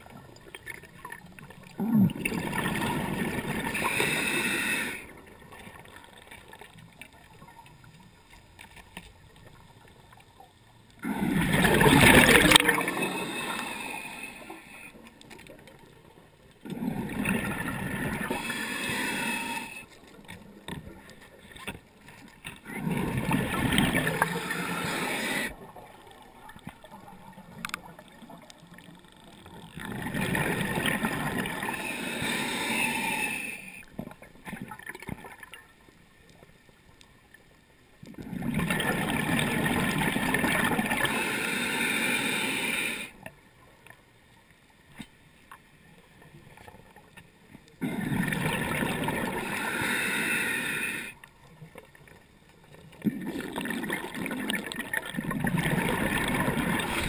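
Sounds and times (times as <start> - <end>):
exhaled bubbles rushing: 0.0 - 4.0, 11.0 - 13.4, 16.7 - 18.5, 22.6 - 28.2, 29.8 - 31.8, 38.2 - 41.1, 47.8 - 49.6, 53.0 - 57.0
diver breathing through regulator: 3.4 - 5.2, 11.0 - 15.0, 16.7 - 19.9, 24.0 - 25.6, 31.4 - 33.9, 40.9 - 43.2, 49.2 - 51.2.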